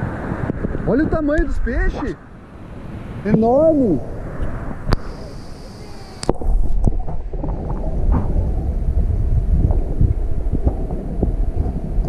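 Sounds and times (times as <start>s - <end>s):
muffled underwater rumble: 4.0s - 12.0s
small underwater clicks and crackles: 4.4s - 12.0s.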